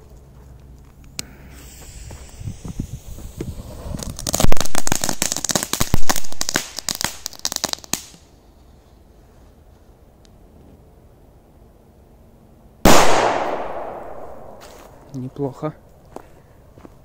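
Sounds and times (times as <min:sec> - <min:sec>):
firecracker crackling: 0:01.2 - 0:08.3, 0:12.9 - 0:15.0
firecracker fuse hissing: 0:01.2 - 0:08.3.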